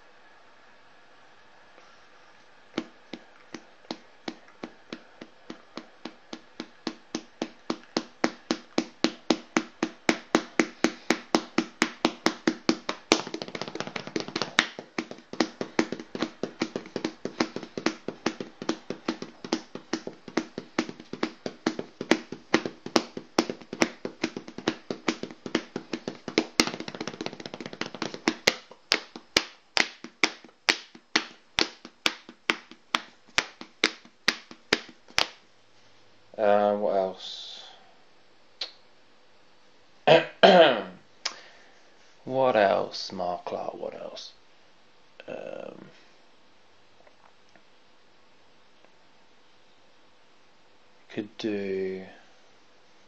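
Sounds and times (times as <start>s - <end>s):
dense tapping: 2.8s - 35.4s
sharp taps: 2.8s - 35.4s.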